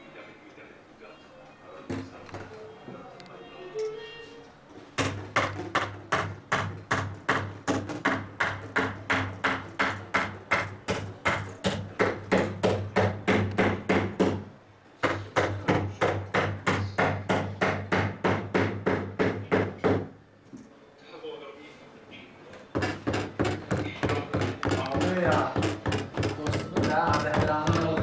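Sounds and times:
beater comb knocking on loom: 0:22.8 - 0:28.0.

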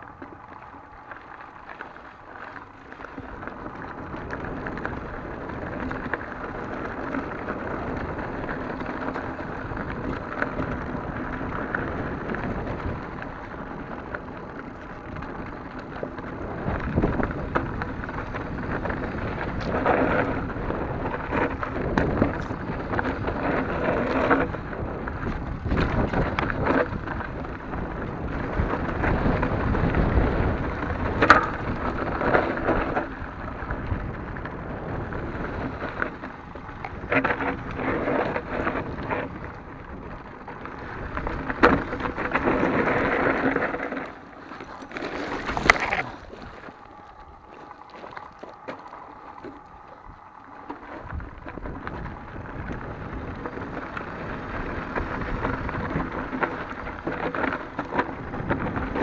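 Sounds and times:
bike tyres crunching over gravel: 0:00.0 - 0:59.0
bike knocks and rattles: 0:02.9 - 0:46.6.

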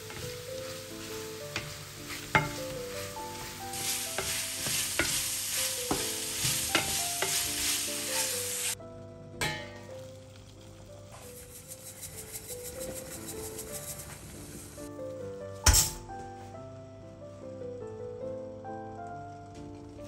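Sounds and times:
shrimp sizzling in a frying pan: 0:00.0 - 0:08.8, 0:09.8 - 0:14.9
wooden spatula scraping a pan: 0:00.0 - 0:08.8, 0:11.1 - 0:14.9.

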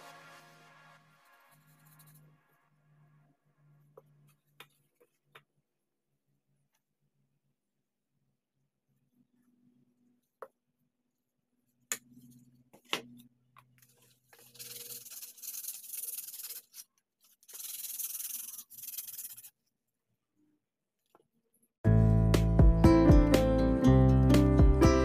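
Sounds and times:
sandpaper rubbing on plastic: 0:14.4 - 0:19.6.

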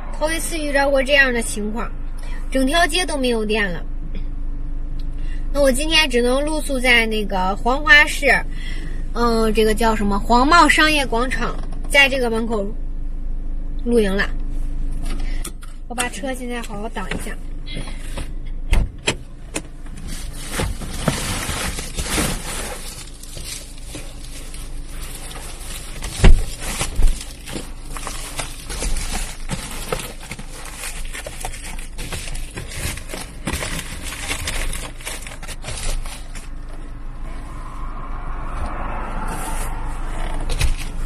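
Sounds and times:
foil shades crinkling: 0:20.0 - 0:36.6.

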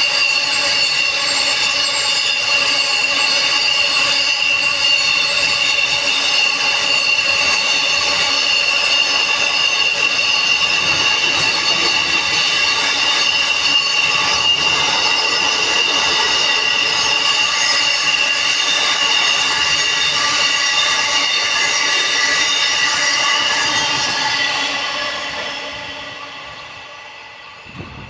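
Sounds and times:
train wheels rolling on rails: 0:00.0 - 0:28.0.

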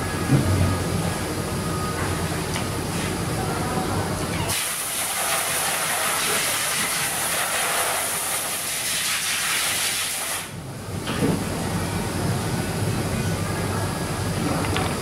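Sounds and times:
loud airy hiss: 0:04.5 - 0:10.6.

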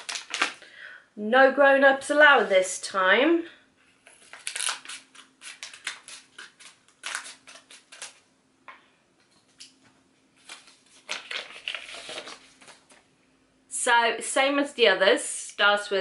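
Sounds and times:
wrapper crackling and rustling: 0:00.0 - 0:00.6, 0:04.2 - 0:08.2, 0:10.4 - 0:13.0
scissors snipping packaging: 0:04.3 - 0:08.2.

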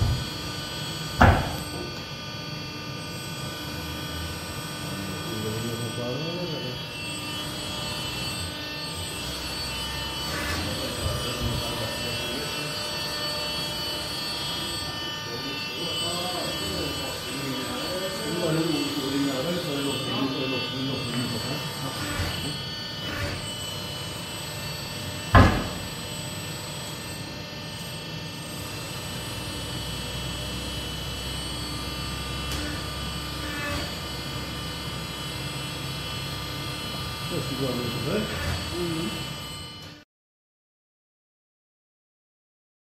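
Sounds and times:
hydraulic unit whining: 0:00.0 - 0:02.1, 0:05.0 - 0:27.2
machine humming: 0:00.0 - 0:40.0.

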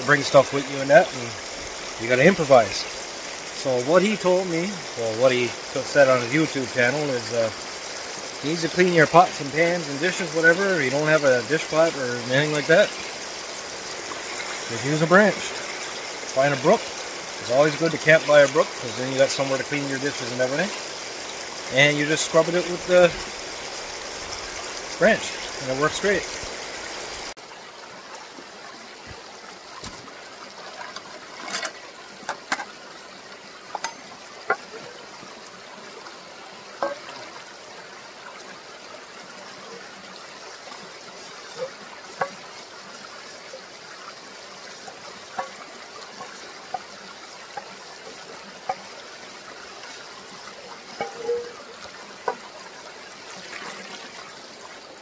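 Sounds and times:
brook water trickling: 0:00.0 - 0:55.0
pot scrubbing knocks and splashes: 0:33.7 - 0:35.0, 0:36.8 - 0:37.3, 0:45.2 - 0:47.8, 0:50.8 - 0:52.5.

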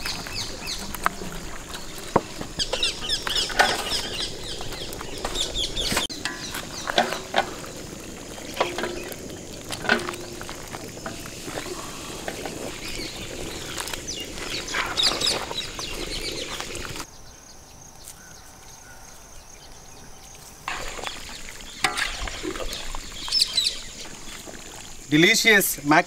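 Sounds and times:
bubbling sauce: 0:00.0 - 0:17.1, 0:20.7 - 0:25.2
birds calling: 0:00.0 - 0:26.0
metal ladle stirring in a pan: 0:06.0 - 0:15.6, 0:20.7 - 0:23.3.

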